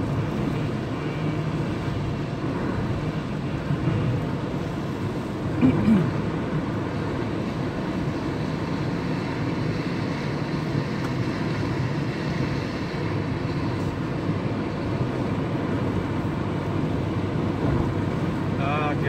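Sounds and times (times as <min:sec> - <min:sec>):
car road noise from cabin: 0:00.0 - 0:19.0.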